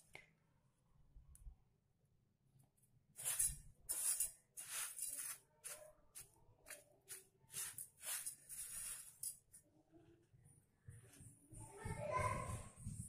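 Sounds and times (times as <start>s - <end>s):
rice grains rustling in metal pot: 3.2s - 5.8s, 7.5s - 9.5s.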